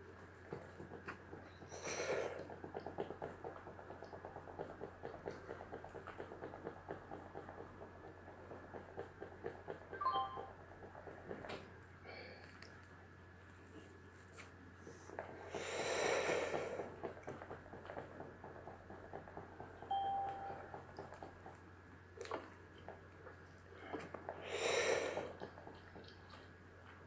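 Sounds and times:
man breathing smoke: 1.6s - 2.6s, 14.8s - 17.2s, 23.7s - 25.5s.

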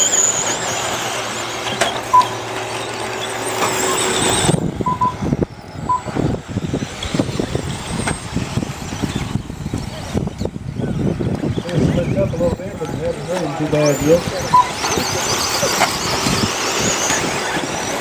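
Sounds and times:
short electronic beeps: 0.0s - 6.2s, 14.5s - 16.4s
high-pitched motor whine: 0.0s - 18.0s.

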